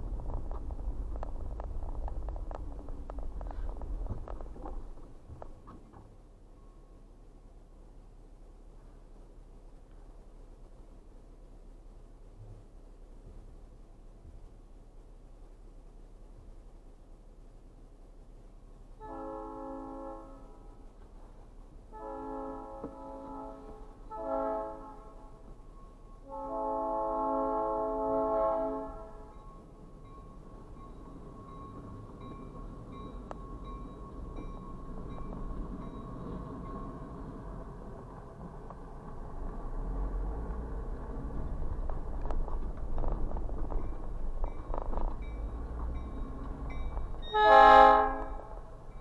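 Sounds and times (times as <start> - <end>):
car engine and road rumble: 0.0 - 19.2, 28.7 - 49.0
locomotive air horn blasts: 19.0 - 20.8, 21.9 - 25.4, 26.2 - 29.4, 47.2 - 48.8.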